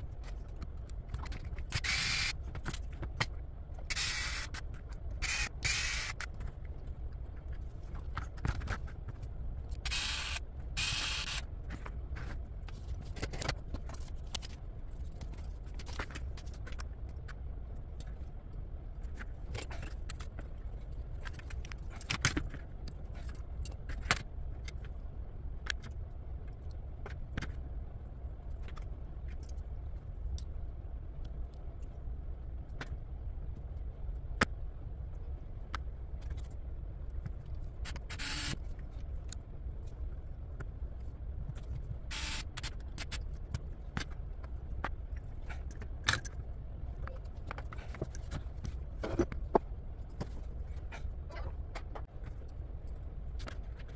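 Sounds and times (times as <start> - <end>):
steady low hum: 0.0 - 53.9
cordless screwdriver running: 1.8 - 2.3, 3.9 - 4.5, 5.2 - 6.2, 9.9 - 11.4, 38.1 - 38.6, 42.1 - 42.4.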